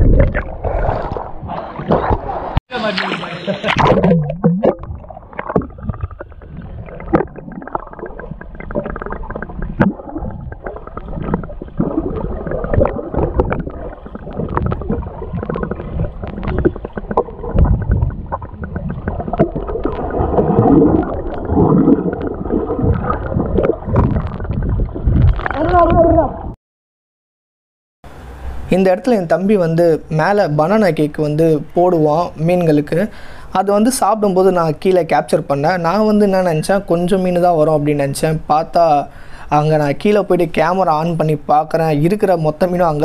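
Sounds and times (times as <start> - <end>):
underwater gurgling and bubbling: 0.0 - 2.6, 3.4 - 26.5.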